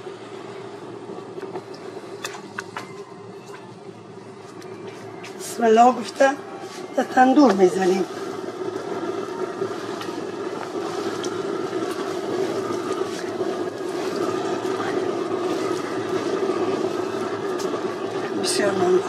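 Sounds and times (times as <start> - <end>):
oven fire roaring: 0.0 - 19.0.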